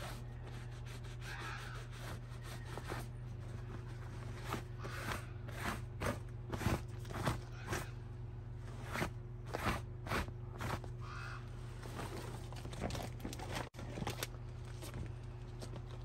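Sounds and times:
steady low hum: 0.0 - 16.0
faint bird call: 11.0 - 11.6.

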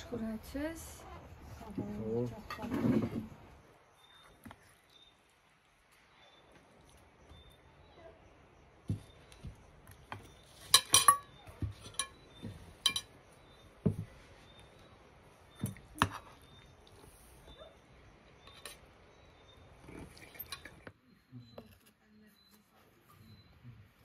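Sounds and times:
tableware clinking: 10.6 - 12.2, 12.8 - 13.2.

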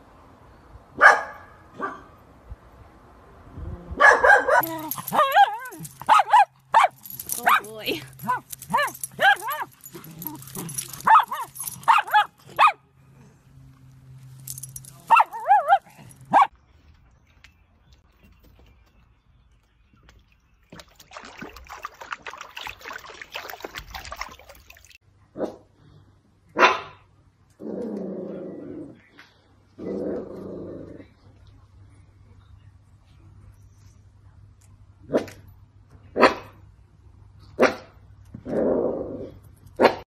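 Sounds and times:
dog barking: 1.0 - 2.1, 4.0 - 9.7, 11.0 - 12.8, 15.1 - 16.5, 26.6 - 27.0, 36.2 - 36.6
dogs yipping and whining: 4.0 - 12.7, 14.5 - 16.5.

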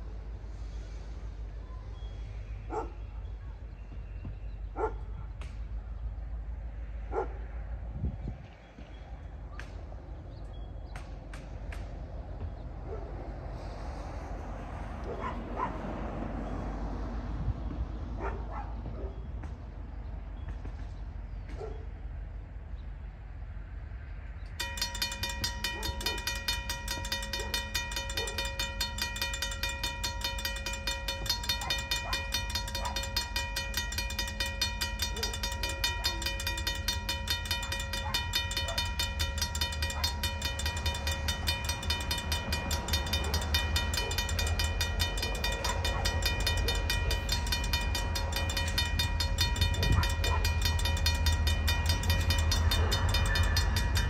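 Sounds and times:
railroad crossing bell ringing: 24.5 - 54.0
train rumble: 24.5 - 54.0.

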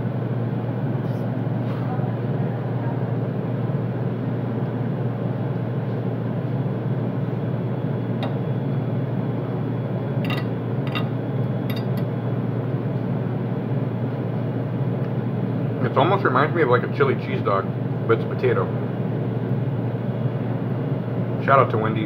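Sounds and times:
kitchen machinery hum: 0.0 - 22.0
fork clicking on plate: 10.2 - 12.1.

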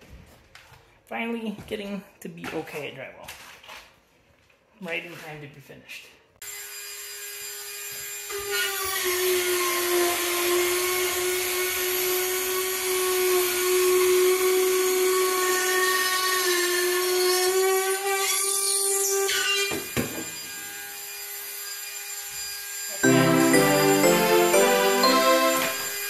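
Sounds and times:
rotary tool motor whine: 6.4 - 12.8
gritty drywall cutting noise: 6.4 - 23.0.

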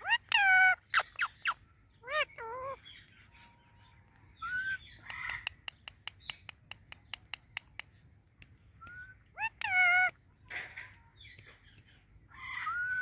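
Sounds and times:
parakeet chirping and squawking: 0.0 - 3.6, 4.4 - 5.6, 9.3 - 13.0.

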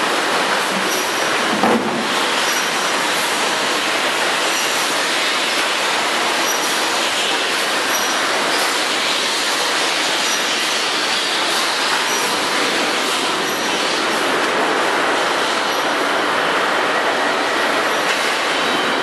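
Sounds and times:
machinery hiss and rattle: 0.0 - 16.1.

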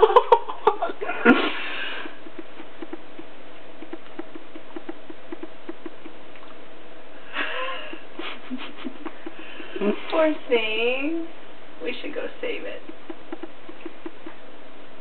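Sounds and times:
faint steady hum: 0.0 - 15.0
soft low animal calls: 1.7 - 6.6, 12.8 - 14.4.

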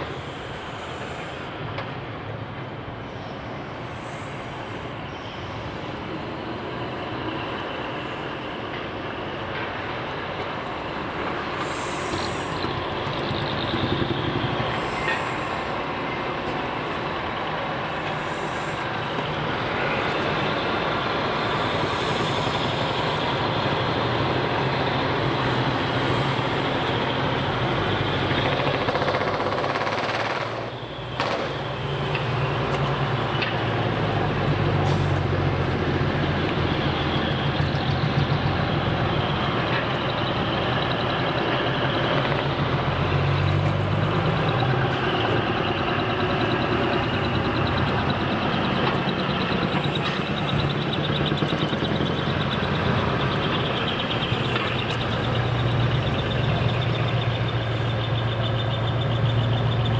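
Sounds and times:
air brake hisses: 0.0 - 1.6, 3.8 - 5.8, 11.6 - 12.8, 14.7 - 15.9, 18.0 - 19.1, 34.8 - 35.3
diesel truck engines running: 0.0 - 59.9.

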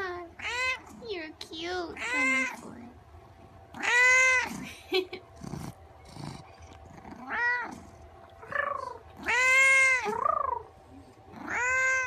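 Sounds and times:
cat meowing: 8.4 - 10.6, 11.4 - 12.0.

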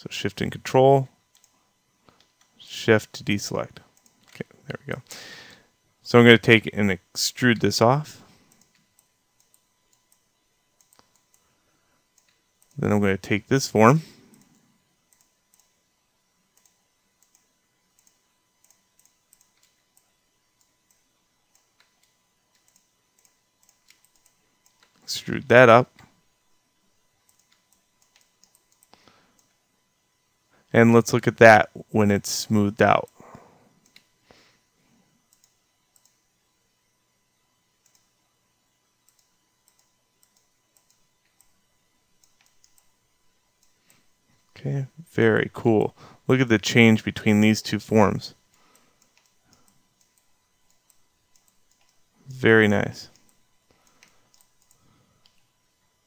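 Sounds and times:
computer mouse clicks: 1.3 - 1.5, 4.0 - 4.4, 8.5 - 11.5, 12.1 - 12.8, 14.3 - 15.8, 16.5 - 25.0, 27.2 - 29.6, 33.8 - 34.1, 35.3 - 36.2, 37.8 - 38.1, 39.0 - 41.6, 42.2 - 42.9, 48.5 - 52.1, 53.1 - 55.5.

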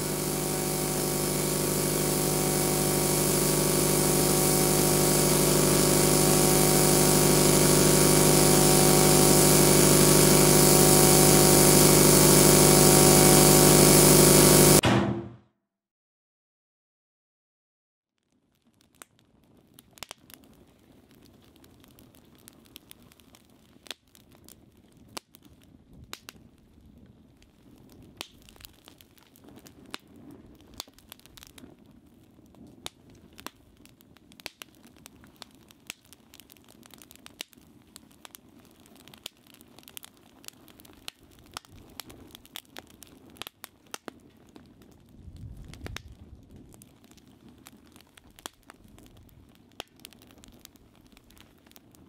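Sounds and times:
fire crackling and popping: 0.0 - 14.8, 18.2 - 52.0
low rush of flame: 0.0 - 14.8, 44.7 - 51.4.

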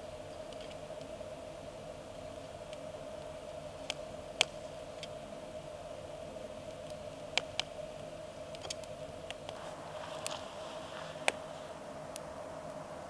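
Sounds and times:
faint steady drone: 0.0 - 13.0
campfire crackling and popping: 2.4 - 5.2, 6.6 - 12.3.

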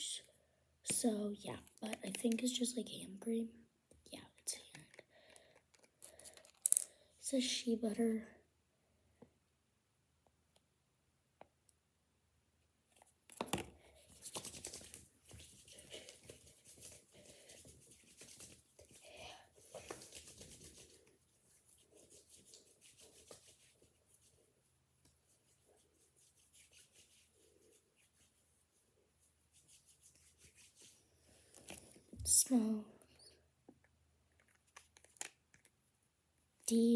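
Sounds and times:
hands rubbing in cream: 14.0 - 32.0.

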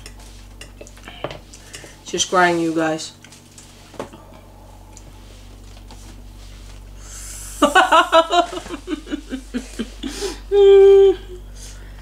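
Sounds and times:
person laughing: 7.2 - 11.4.

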